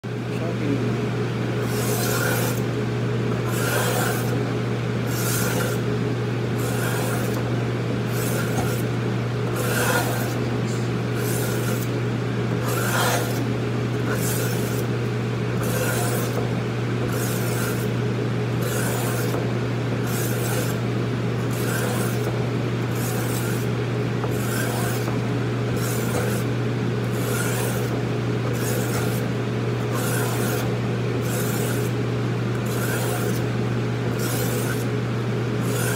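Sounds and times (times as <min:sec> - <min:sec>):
steady low hum: 0:00.0 - 0:35.9
knife scraping on sharpening stone: 0:03.5 - 0:04.3, 0:08.1 - 0:08.8, 0:09.6 - 0:10.4, 0:12.6 - 0:13.4, 0:21.5 - 0:22.2, 0:24.3 - 0:25.1, 0:29.9 - 0:31.9, 0:32.6 - 0:33.4.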